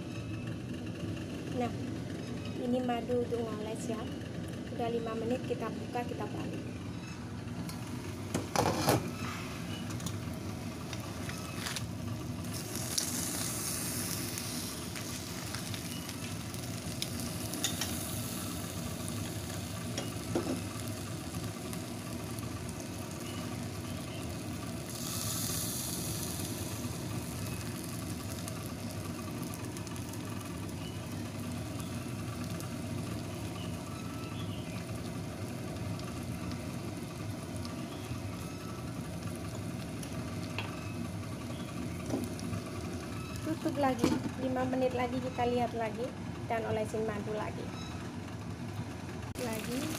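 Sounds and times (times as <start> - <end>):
chicken sizzling in a wok: 7.3 - 45.7, 49.4 - 49.9.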